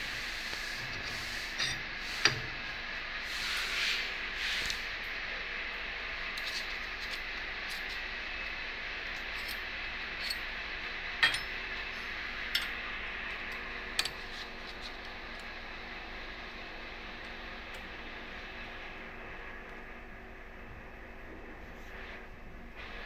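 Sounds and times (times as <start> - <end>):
machine hiss: 0.0 - 7.3.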